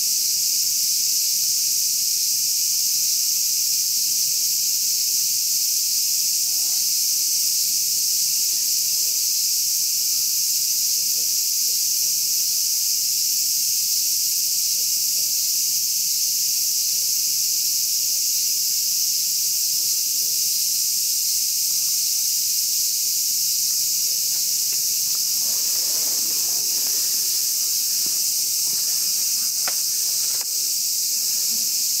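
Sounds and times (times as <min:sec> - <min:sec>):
insects chirring: 0:00.0 - 0:32.0
faint rustles: 0:23.9 - 0:31.9
click: 0:29.6 - 0:30.5.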